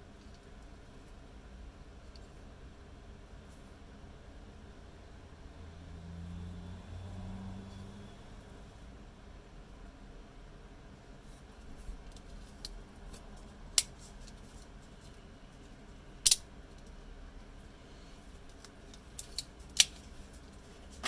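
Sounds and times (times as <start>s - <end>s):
knife spring snapping and clicking: 16.2s - 16.4s.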